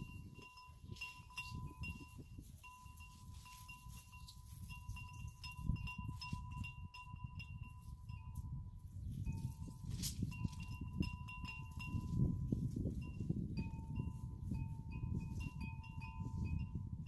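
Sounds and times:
metal wind chimes ringing: 0.0s - 17.0s
wind rumbling on microphone: 0.0s - 17.0s
lower chime: 9.3s - 17.0s.

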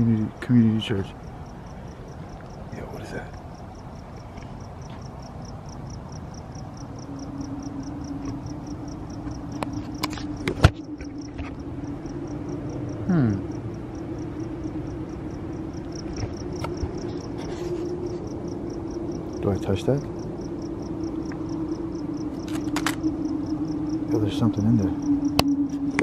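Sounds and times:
crickets chirping: 0.0s - 26.0s
low steady hum: 0.0s - 26.0s
sharp clicks: 22.4s - 23.1s.

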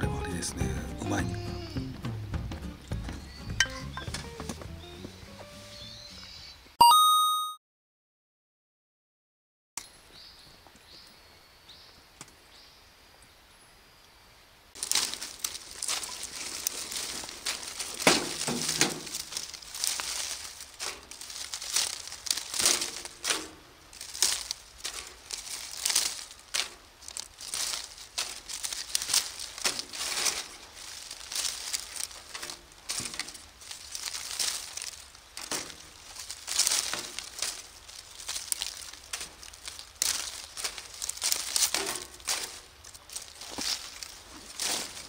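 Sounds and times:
dry leaves rustling and crunching: 14.7s - 45.0s.

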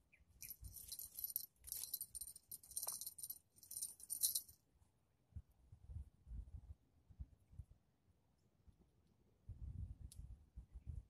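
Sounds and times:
rustling and scraping handling noise: 0.4s - 4.6s.

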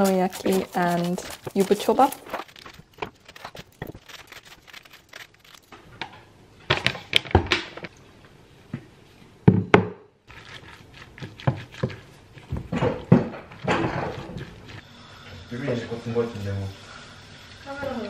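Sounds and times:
cabbage being shredded into bowl: 0.0s - 5.7s, 10.3s - 14.8s
wooden spoon stirring cabbage: 0.0s - 5.7s, 10.3s - 14.8s.

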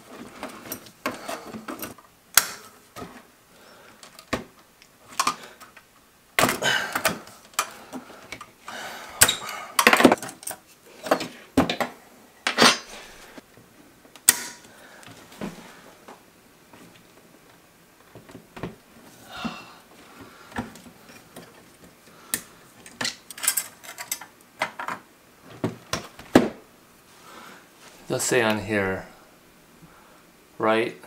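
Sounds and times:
small parts clicking and rattling: 21.1s - 25.0s.

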